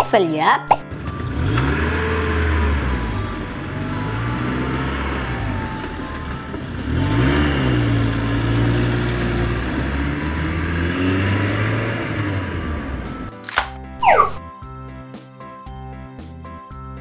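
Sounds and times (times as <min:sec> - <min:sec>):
truck engine revving: 0:00.9 - 0:13.4.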